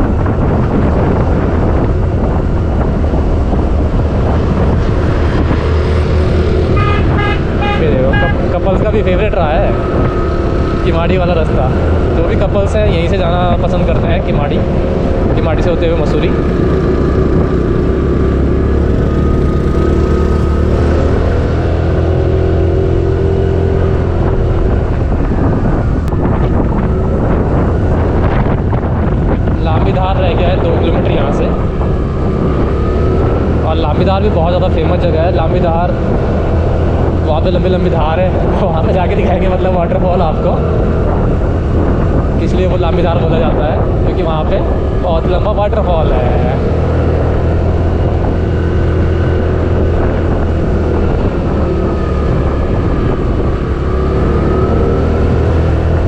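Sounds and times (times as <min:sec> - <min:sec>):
wind rushing over microphone: 0:00.0 - 0:56.0
scooter engine running: 0:16.2 - 0:21.1.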